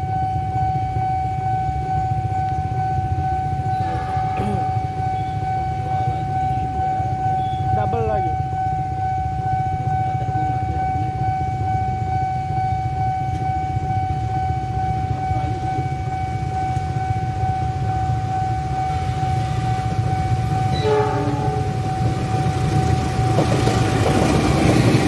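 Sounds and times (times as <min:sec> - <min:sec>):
crossing alarm high tone: 0:00.0 - 0:25.0.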